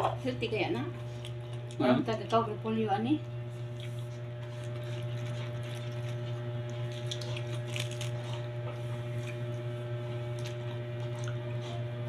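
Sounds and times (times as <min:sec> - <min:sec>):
low electrical hum: 0:00.0 - 0:12.0
cabbage leaves torn and chewed: 0:01.0 - 0:02.0, 0:03.4 - 0:12.0.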